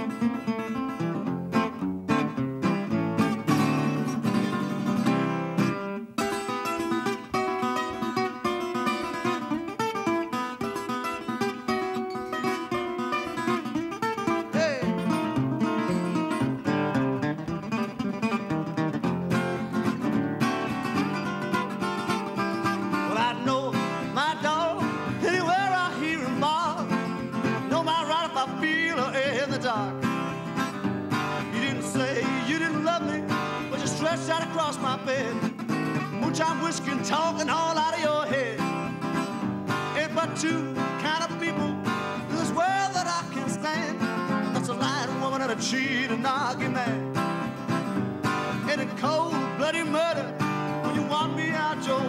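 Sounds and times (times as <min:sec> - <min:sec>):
fingerpicked acoustic guitar: 0:00.0 - 0:52.0
man singing: 0:12.4 - 0:16.8, 0:20.5 - 0:52.0.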